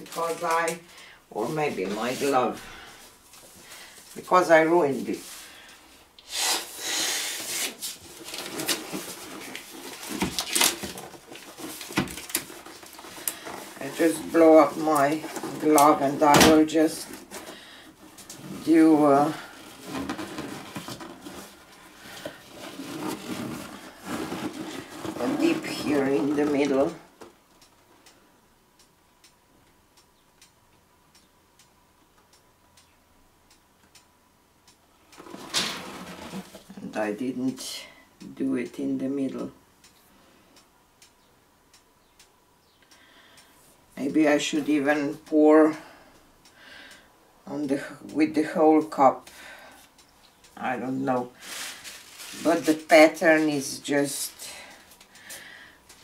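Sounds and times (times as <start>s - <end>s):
breath blown into glove: 6.2s - 7.7s
glove rustling: 18.2s - 26.9s
faint ticking: 39.6s - 52.2s.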